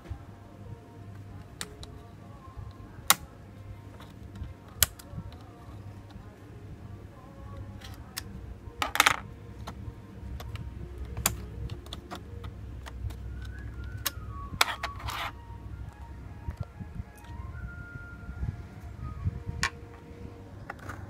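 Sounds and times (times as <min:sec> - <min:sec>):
ram sticks clicking: 0:03.9 - 0:06.2.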